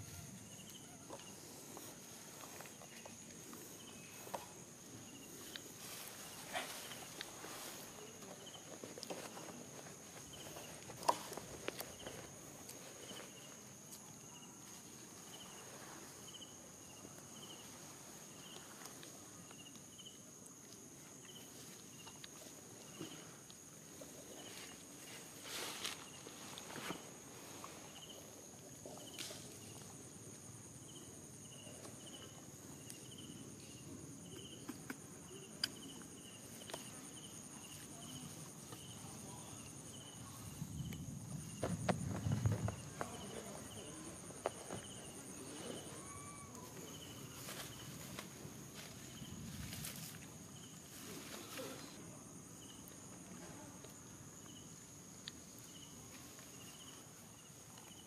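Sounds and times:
soft rustle: 0:00.0 - 0:34.3, 0:35.1 - 0:54.5
insects droning and chirping: 0:00.0 - 0:58.0.

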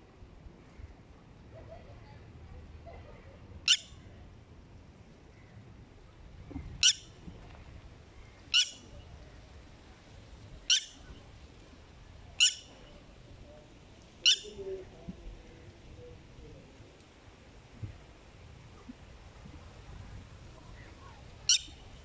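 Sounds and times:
lapwing alarm calls: 0:03.7 - 0:04.0, 0:06.8 - 0:07.1, 0:08.5 - 0:08.9, 0:10.7 - 0:11.0, 0:12.4 - 0:12.7, 0:14.2 - 0:14.6, 0:21.5 - 0:21.8.

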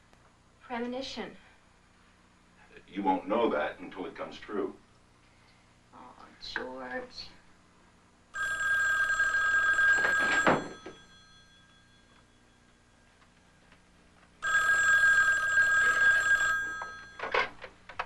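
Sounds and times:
telephone bell ringing: 0:08.3 - 0:12.9, 0:14.4 - 0:17.5.

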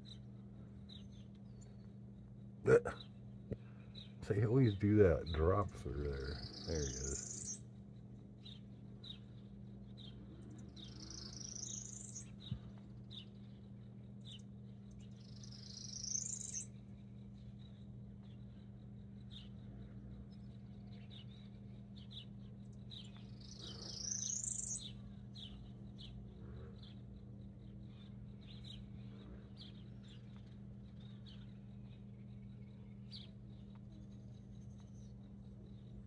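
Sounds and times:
small songbirds chirping: 0:00.0 - 0:36.0
steady low hum: 0:00.0 - 0:36.0
whistled bird call: 0:06.3 - 0:07.6, 0:15.6 - 0:16.7, 0:23.5 - 0:25.0.

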